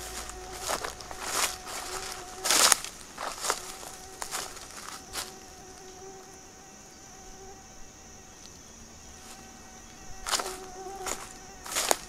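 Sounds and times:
footstep on dry ground: 0.0s - 5.8s, 9.2s - 12.0s
fly buzzing near microphone: 0.0s - 12.0s
high-pitched insect drone: 0.0s - 12.0s.

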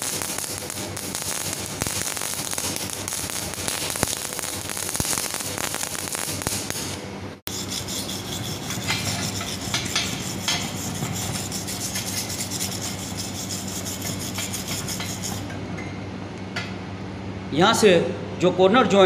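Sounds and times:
welding arc crackling: 0.0s - 15.4s
wire brush scrubbing metal: 7.5s - 15.4s.

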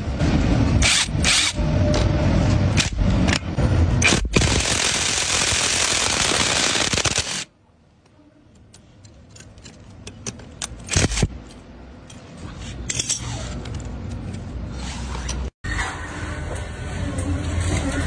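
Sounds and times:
metallic clinks and scrapes: 8.8s - 15.5s.

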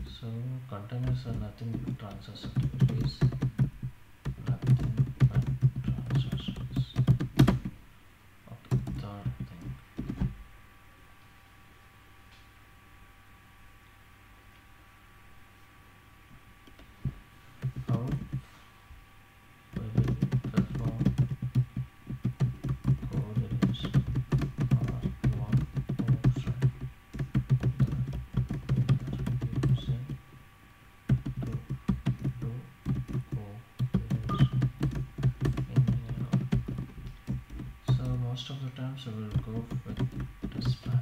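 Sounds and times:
faint electrical hum: 0.0s - 41.0s
computer keyboard typing: 1.0s - 7.8s, 8.7s - 10.4s, 17.6s - 18.5s, 19.7s - 30.2s, 31.1s - 38.3s, 39.3s - 41.0s.

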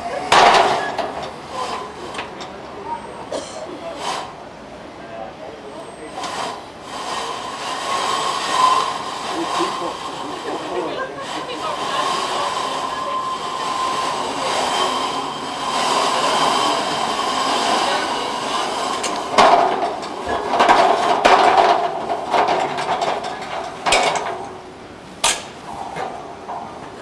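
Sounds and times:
metal clanks and knocks: 0.3s - 2.7s, 15.6s - 27.0s
stretcher scraping on ladder: 6.2s - 27.0s.

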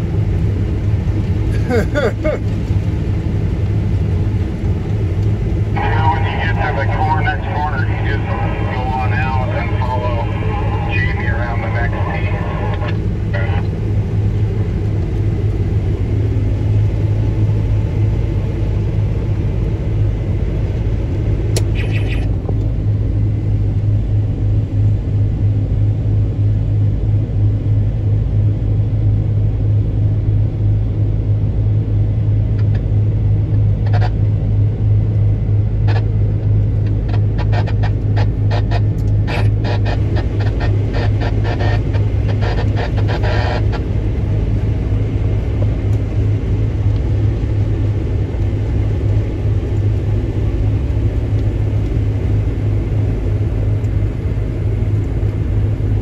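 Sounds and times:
combine harvester droning: 0.0s - 56.0s.

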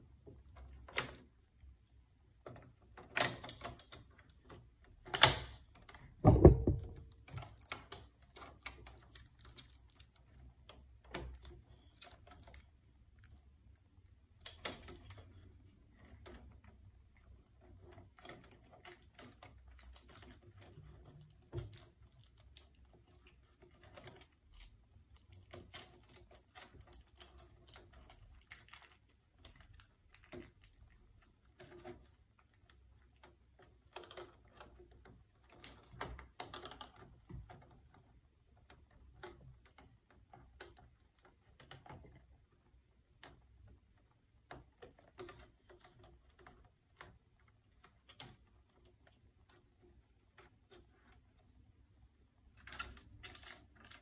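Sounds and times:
plastic parts clicking and rattling: 0.2s - 54.0s
louder knock: 6.2s - 7.0s.

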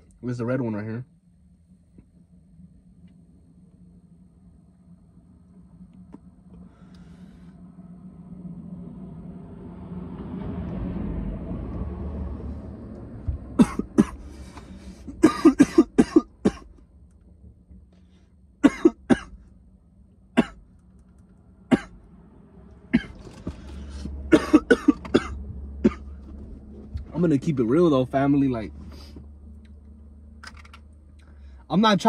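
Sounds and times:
man breathing out: 6.6s - 7.6s
man coughing harshly: 13.6s - 14.2s, 15.1s - 16.7s, 18.6s - 19.4s, 20.4s - 20.6s, 21.7s - 22.0s, 22.9s - 23.2s, 24.3s - 26.1s.

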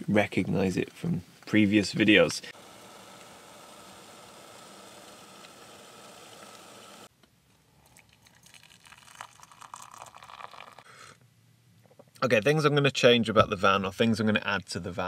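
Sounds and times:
kettle hissing on stove: 2.5s - 7.1s
water pouring into mug: 7.8s - 10.9s.

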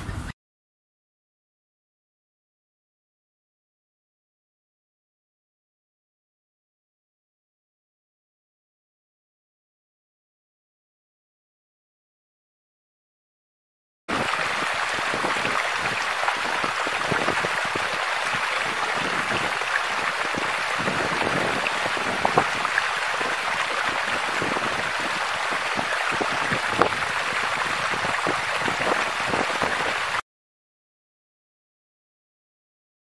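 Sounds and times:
water trickling: 14.1s - 30.2s.

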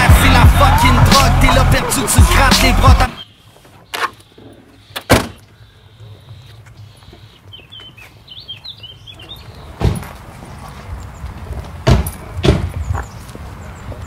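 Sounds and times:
birds chirping: 0.0s - 11.6s, 12.2s - 14.0s
sharp knocks: 11.8s - 12.7s.

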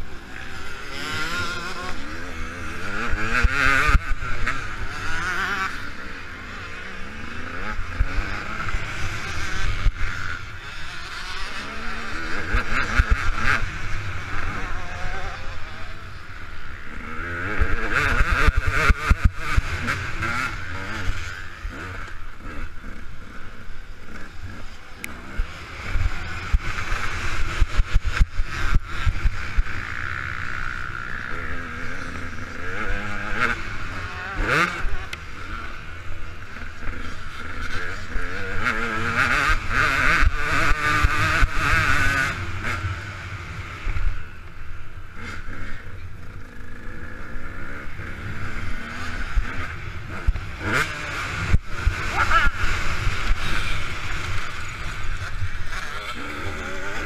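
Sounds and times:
two-stroke engine revving: 0.0s - 44.4s, 45.1s - 57.0s.

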